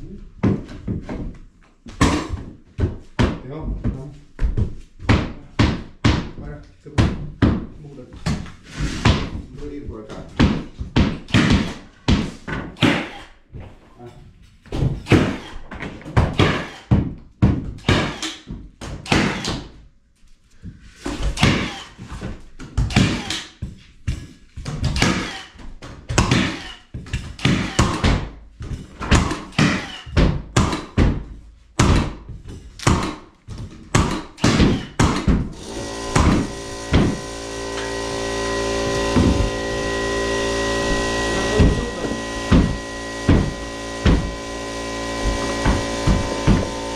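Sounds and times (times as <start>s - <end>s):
knocks and thuds: 0.4s - 13.8s, 14.6s - 19.8s, 21.1s - 37.3s, 39.0s - 39.9s, 40.8s - 44.4s, 45.2s - 46.9s
steady hum: 35.6s - 46.9s.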